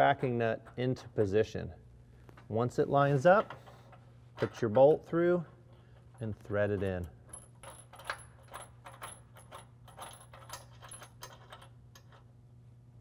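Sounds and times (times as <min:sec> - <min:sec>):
metallic clinks of bolt and washer: 0:06.8 - 0:12.2.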